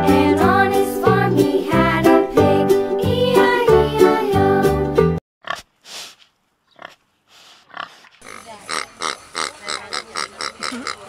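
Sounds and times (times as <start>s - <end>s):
pigs grunting: 6.7s - 11.0s.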